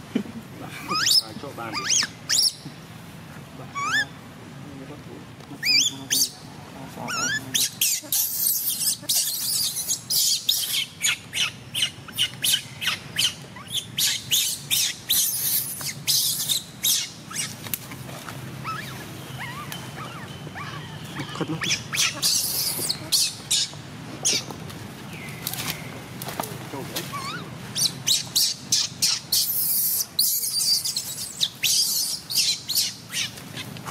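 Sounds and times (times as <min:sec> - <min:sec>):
baby monkey screaming: 0:00.9 - 0:02.6, 0:03.7 - 0:04.2, 0:05.6 - 0:06.4, 0:07.0 - 0:17.6, 0:18.6 - 0:24.5, 0:27.0 - 0:33.9.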